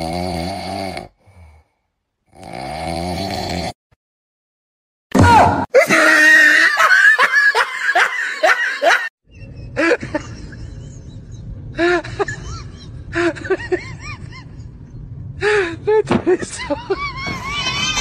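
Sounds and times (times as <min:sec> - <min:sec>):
low steady hum: 0:09.3 - 0:17.8
rapid laughing: 0:16.3 - 0:18.0.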